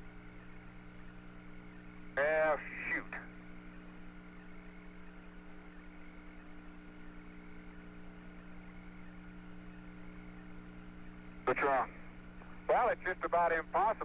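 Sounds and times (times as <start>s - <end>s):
radio held tones hum: 0.0s - 14.0s
radio hiss: 0.0s - 14.0s.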